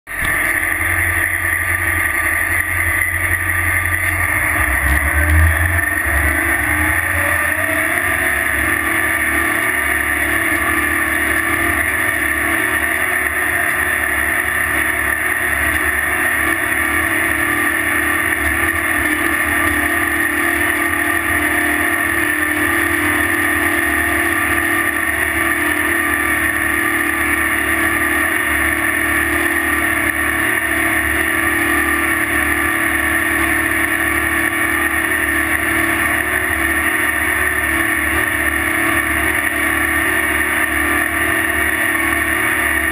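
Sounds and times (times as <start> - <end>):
diesel engines droning: 0.1 - 42.9.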